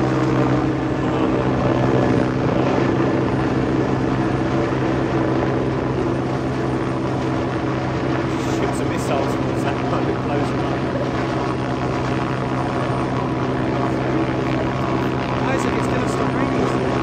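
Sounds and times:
helicopter droning overhead: 0.0 - 17.0.

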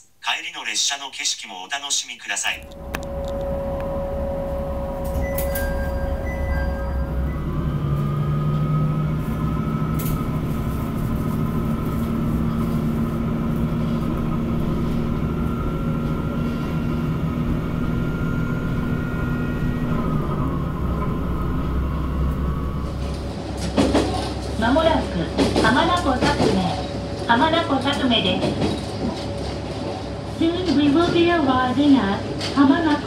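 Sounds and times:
diesel railcar engine: 2.5 - 33.0.

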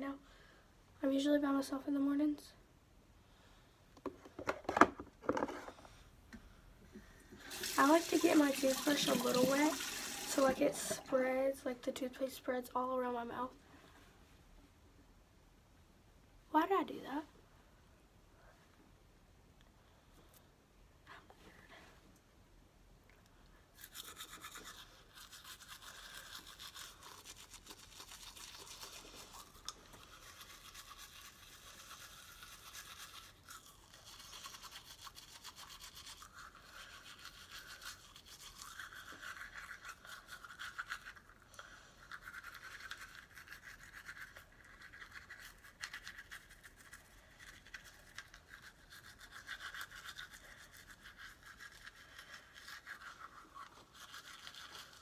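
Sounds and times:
toothbrush scrubbing teeth: 7.5 - 12.1, 23.7 - 55.0.

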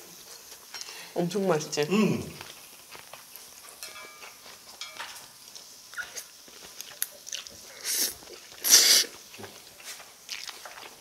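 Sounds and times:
person slurping noodles: 7.7 - 9.2.

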